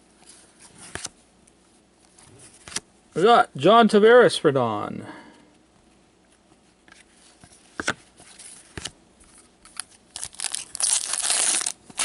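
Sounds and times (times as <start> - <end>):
foil wrapper tearing and crinkling: 9.7 - 12.0.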